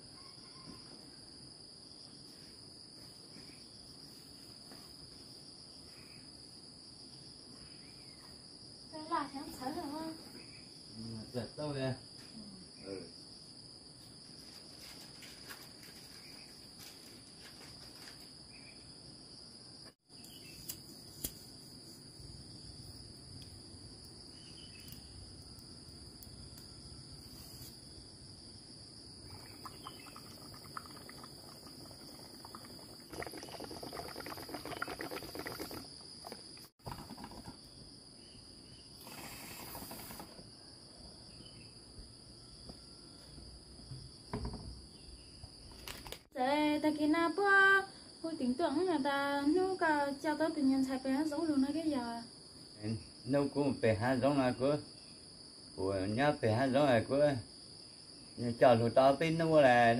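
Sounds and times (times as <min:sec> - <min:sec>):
insects chorus: 0:00.0 - 0:59.9
rustling noise: 0:14.0 - 0:18.4, 0:27.2 - 0:27.8.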